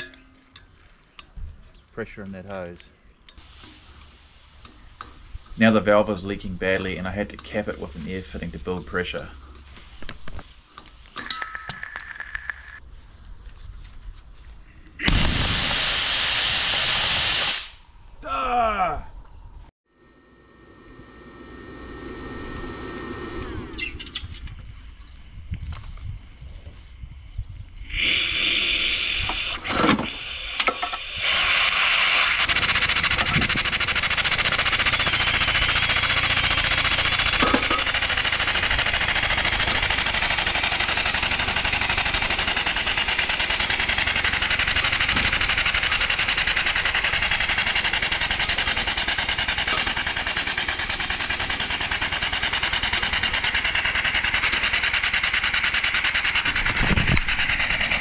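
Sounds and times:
steam engine exhaust hissing: 3.3 - 12.8, 15.0 - 18.0, 27.7 - 58.0.

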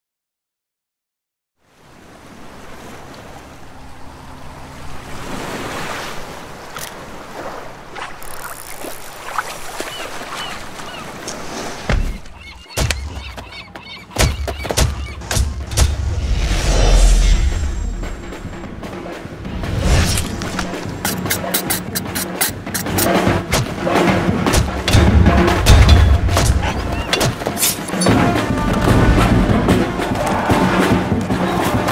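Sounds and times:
wind: 1.6 - 31.9
surf: 2.1 - 15.3, 15.9 - 31.9
sharp percussive hits: 17.4 - 31.3.

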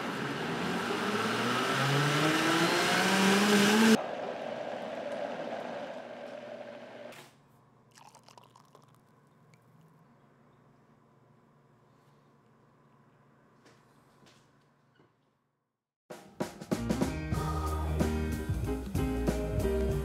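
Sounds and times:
liquid poured into glass: 7.9 - 9.9.

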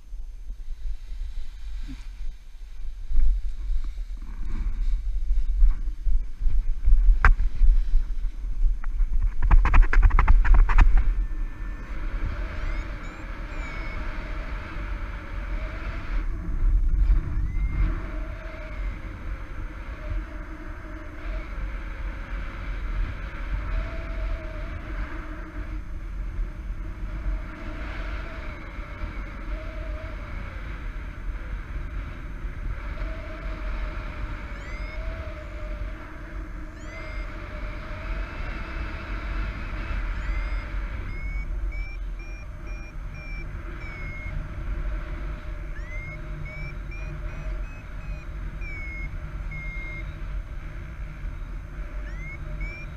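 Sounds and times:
low wavering hum: 0.0 - 52.9
wind buffeting microphone: 0.0 - 52.9
variometer beeps rising in pitch: 10.6 - 15.6, 17.2 - 19.0, 34.4 - 35.6, 36.6 - 38.3, 39.6 - 50.4, 51.4 - 52.9.

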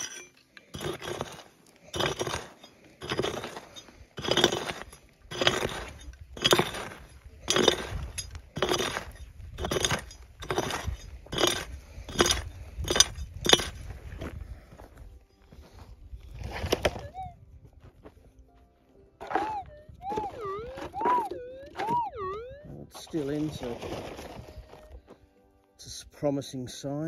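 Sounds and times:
pick striking stony ground: 0.0 - 14.9, 16.3 - 17.2, 19.2 - 25.0
loose stones scraping: 0.0 - 15.0, 15.6 - 17.2, 19.2 - 22.1, 22.8 - 25.2.

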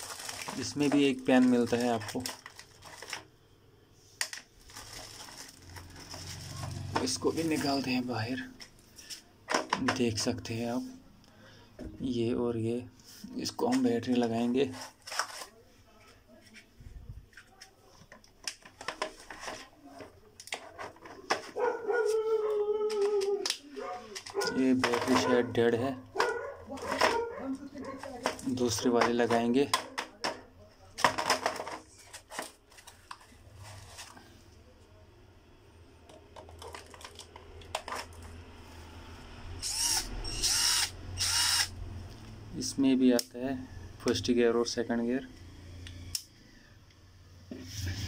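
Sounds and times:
cordless drill whine: 39.6 - 41.8.

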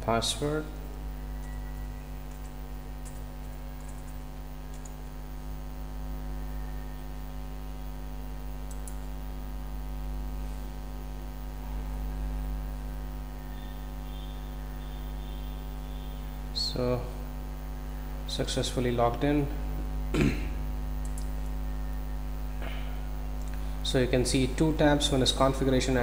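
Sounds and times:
electrical mains hum: 0.0 - 26.0
keyboard clicks: 2.3 - 5.1, 8.7 - 9.1, 21.0 - 21.3.

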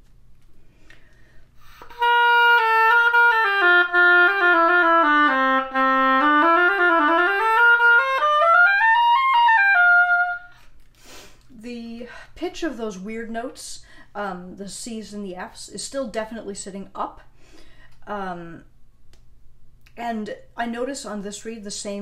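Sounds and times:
oboe melody: 1.7 - 10.6.

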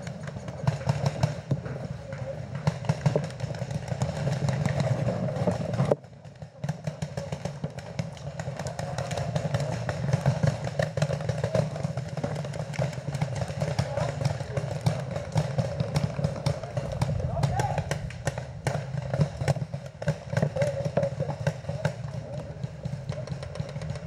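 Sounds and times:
low rumble: 16.6 - 18.6.

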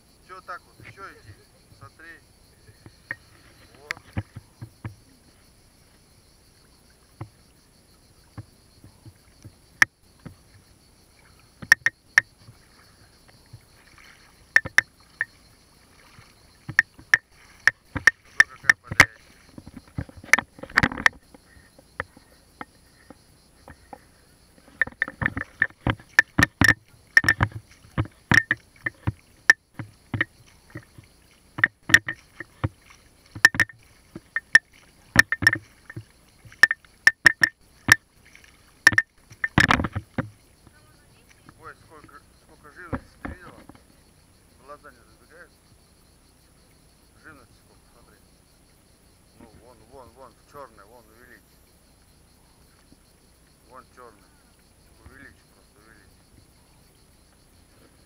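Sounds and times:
footsteps splashing in shallow river: 8.8 - 22.2, 24.7 - 40.4
stones knocking underfoot: 24.7 - 31.0, 31.6 - 38.0, 38.9 - 40.4.

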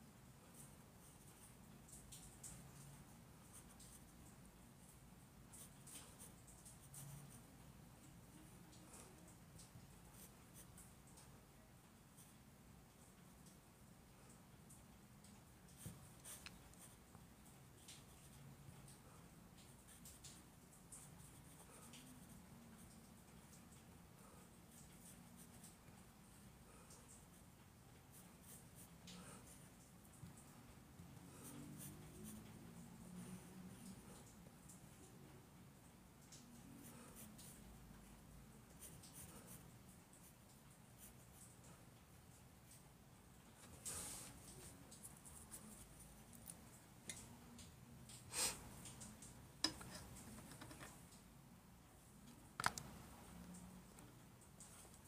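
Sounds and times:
pencil scratching on paper: 5.6 - 7.5, 10.1 - 10.9, 15.8 - 17.0, 21.0 - 23.0, 24.7 - 25.7, 28.1 - 29.6, 31.3 - 32.5, 38.8 - 39.6, 40.2 - 41.4, 45.1 - 46.6.

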